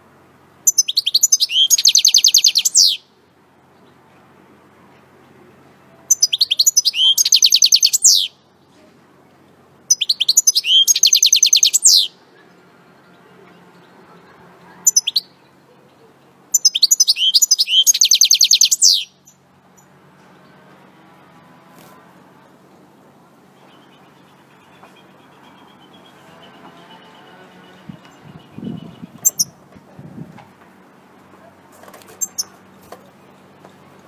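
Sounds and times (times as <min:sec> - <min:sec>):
bird call: 0:00.7 - 0:03.0, 0:06.1 - 0:08.3, 0:09.9 - 0:12.2, 0:16.6 - 0:19.2
finch singing: 0:00.7 - 0:03.0, 0:06.1 - 0:08.4, 0:09.9 - 0:19.4, 0:23.6 - 0:29.6, 0:32.1 - 0:32.9.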